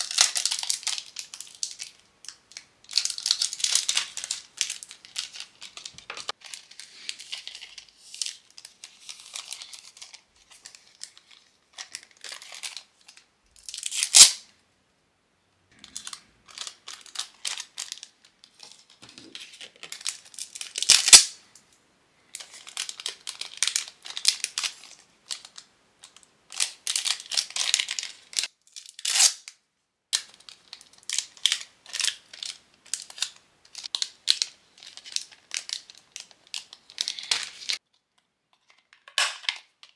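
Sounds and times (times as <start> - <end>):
plastic and paper crinkling: 0.0 - 13.8, 15.8 - 21.3, 22.3 - 28.5, 30.2 - 39.9
sharp plastic crackles: 15.7 - 21.4.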